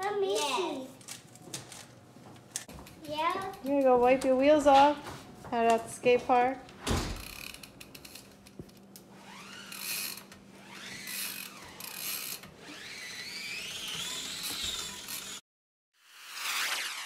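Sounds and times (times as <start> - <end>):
whining tones: 9.0 - 15.4, 16.2 - 17.0.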